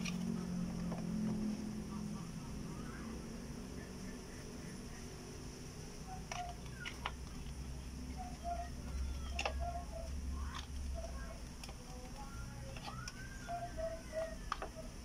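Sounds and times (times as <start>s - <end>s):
low steady hum: 0.0s - 15.0s
plastic connectors clicking: 8.9s - 13.3s.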